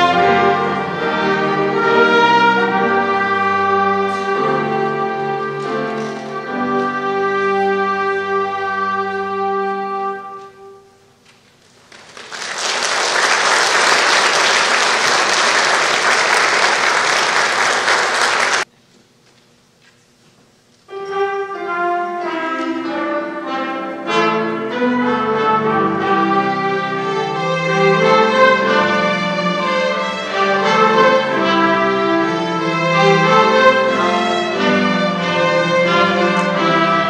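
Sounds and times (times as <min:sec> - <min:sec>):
string ensemble with piano: 0:00.0 - 0:10.4, 0:12.2 - 0:18.7, 0:20.9 - 0:37.0
audience applause: 0:11.8 - 0:18.7.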